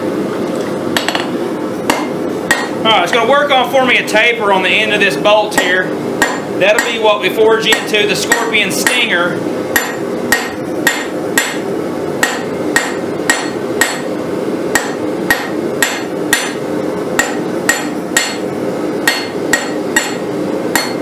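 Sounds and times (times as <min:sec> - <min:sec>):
hammer striking steel on anvil: 0:01.9 - 0:02.8, 0:05.5 - 0:07.0, 0:07.7 - 0:09.1, 0:09.8 - 0:14.1, 0:14.7 - 0:16.6, 0:17.2 - 0:21.0.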